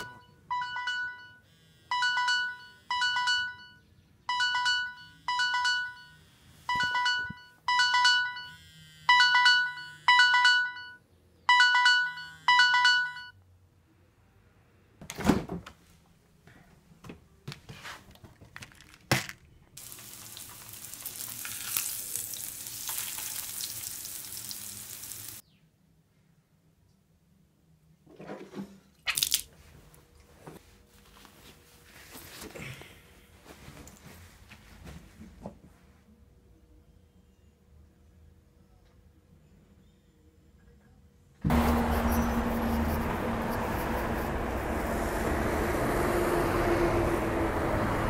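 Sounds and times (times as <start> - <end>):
phone alarm beeping: 0.0 - 13.4
food sizzling in a frying pan: 19.8 - 25.4.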